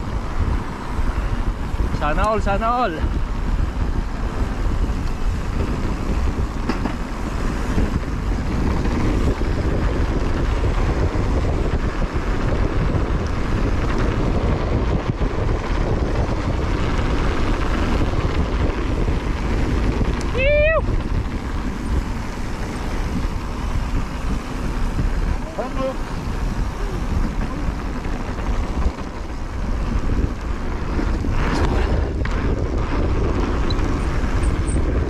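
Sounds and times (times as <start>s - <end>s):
bike rolling on dirt trail: 0.0s - 35.0s
wind on microphone: 0.0s - 35.0s.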